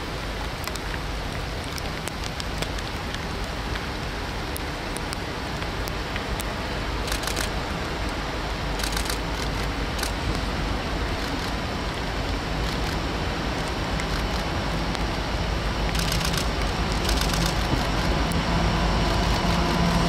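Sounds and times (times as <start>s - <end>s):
faint clicks: 7.1s - 7.6s, 8.8s - 10.4s, 15.9s - 18.4s
locomotive low rumble: 8.2s - 20.0s.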